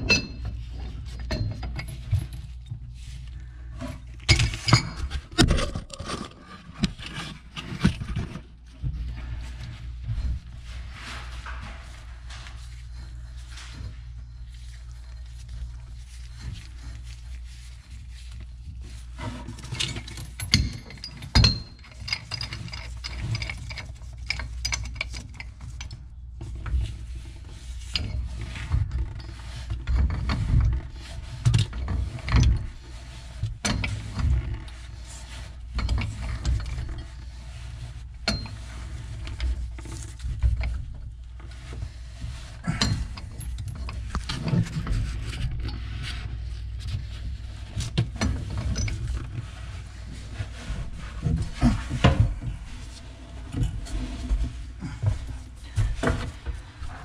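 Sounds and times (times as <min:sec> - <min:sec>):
pipe wrench clicking and scraping: 0:03.9 - 0:08.3, 0:19.2 - 0:26.6.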